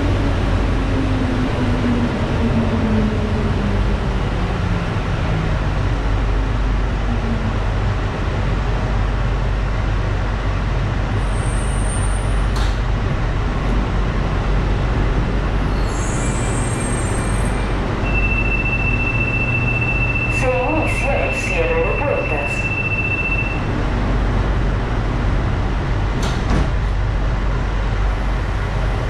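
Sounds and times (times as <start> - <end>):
train rumbling: 0.0 - 29.0
high steady tone: 18.0 - 23.7.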